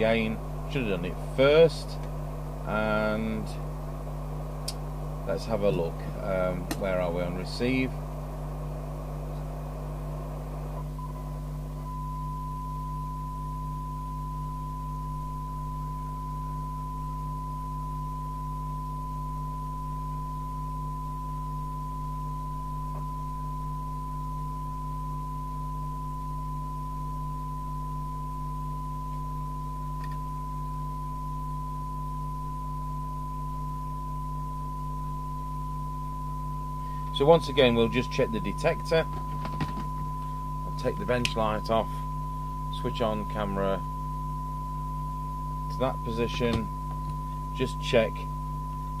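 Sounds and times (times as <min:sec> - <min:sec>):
low hum: 0:00.0 - 0:49.0
receiver hiss: 0:00.0 - 0:49.0
steady radio test tone: 0:00.0 - 0:49.0.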